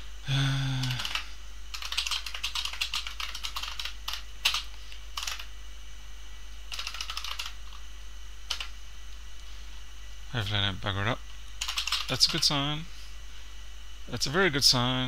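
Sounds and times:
computer keyboard typing: 0.8 - 5.5, 6.7 - 7.8, 8.5 - 8.7, 11.6 - 12.5.

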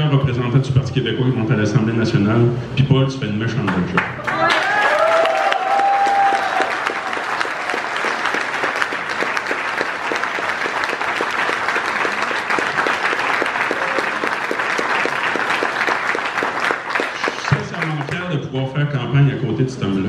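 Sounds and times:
audience applauding: 4.0 - 18.3.

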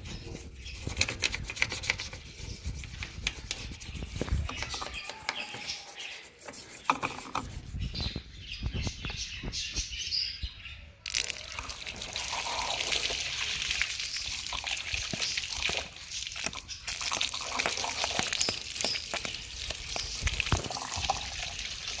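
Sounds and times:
toothbrush scrubbing metal: 0.0 - 8.2
water pouring and splashing: 11.1 - 22.0.

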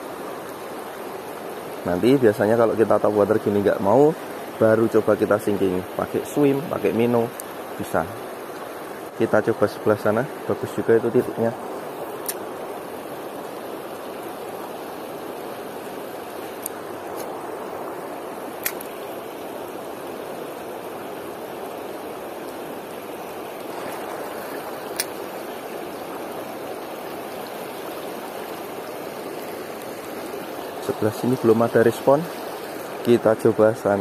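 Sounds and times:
river water rushing: 0.0 - 34.0
sharp clicks: 18.6 - 18.9.

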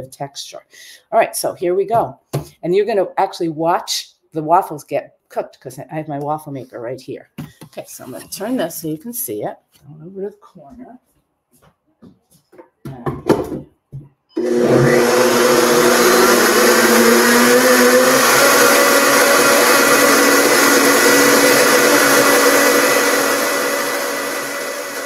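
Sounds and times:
blender motor grinding grain: 14.4 - 25.0.

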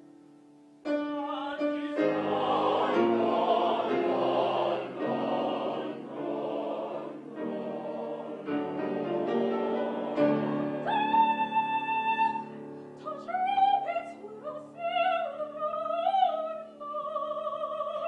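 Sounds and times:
mixed choir singing chords: 0.9 - 12.5.

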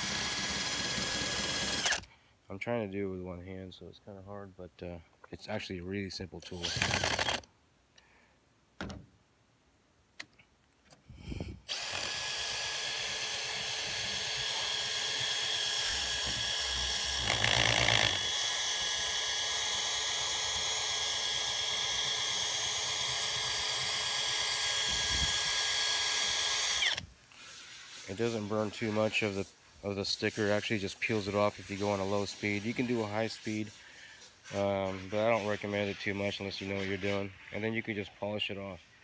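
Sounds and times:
drill motor whine: 0.0 - 2.1, 6.6 - 7.4, 11.7 - 27.0
rubber wheel scrubbing paint: 27.3 - 37.7.

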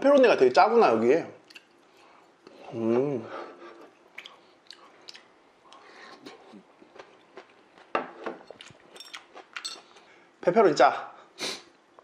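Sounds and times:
chewing salad: 1.4 - 2.6, 3.7 - 10.1.

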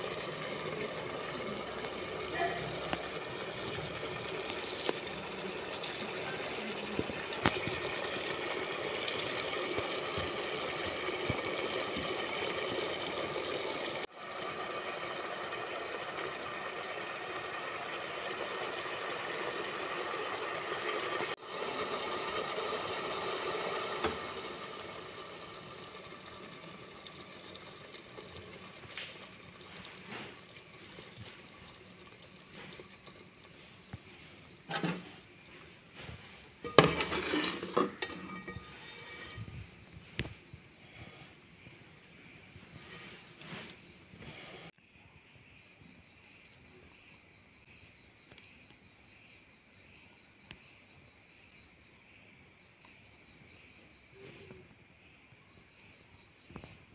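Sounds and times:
stew boiling in metal pot: 0.0 - 44.7.

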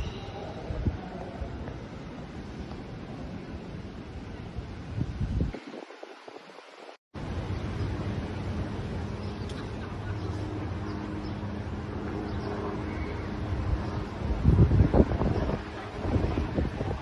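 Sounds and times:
wind buffeting the microphone: 0.0 - 17.0
steady low hum: 7.2 - 17.0.

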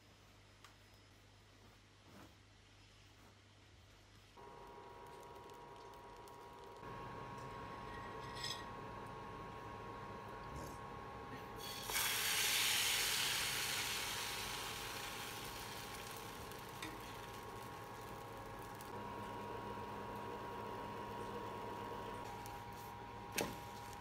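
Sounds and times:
batter sizzling in a pan: 11.6 - 21.1.

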